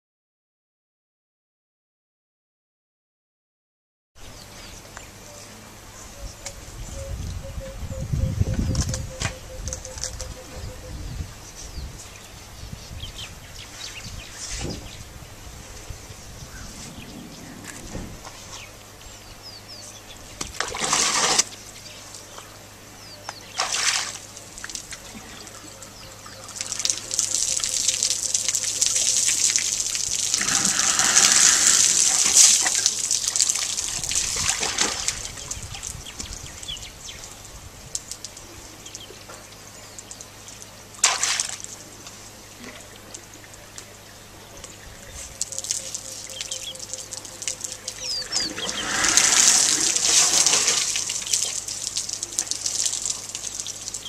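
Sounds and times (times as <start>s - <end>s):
water splashes: 20.5s - 21.6s, 23.5s - 25.7s, 26.3s - 36.0s, 41.0s - 42.0s, 45.4s - 54.0s
water trickling and gushing: 20.6s - 21.6s, 23.4s - 39.1s, 45.3s - 54.0s.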